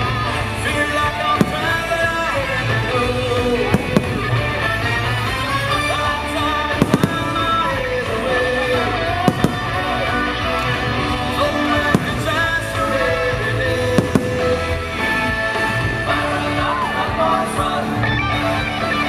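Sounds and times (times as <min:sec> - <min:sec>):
loud music soundtrack: 0:00.0 - 0:19.0
firework shells bursting: 0:01.4 - 0:03.0, 0:03.6 - 0:04.6, 0:06.8 - 0:07.6, 0:09.3 - 0:10.0, 0:11.7 - 0:13.2, 0:13.8 - 0:15.1.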